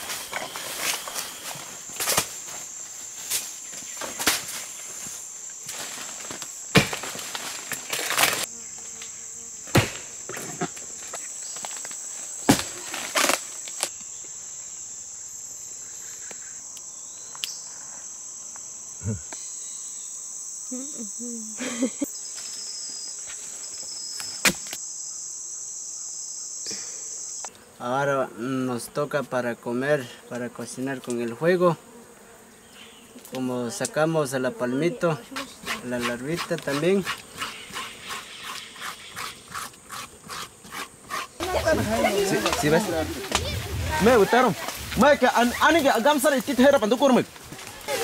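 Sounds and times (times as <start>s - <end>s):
forest insects chorus: 0.0s - 48.0s
axe chopping a stump: 6.7s - 7.2s, 9.7s - 10.1s.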